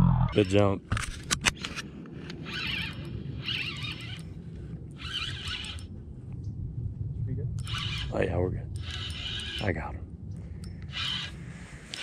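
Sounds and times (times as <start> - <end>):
low steady rumble: 0.0 - 12.0
fishing reel bursts: 2.5 - 4.3, 5.0 - 5.9, 7.6 - 8.2, 8.8 - 9.7, 10.9 - 12.0.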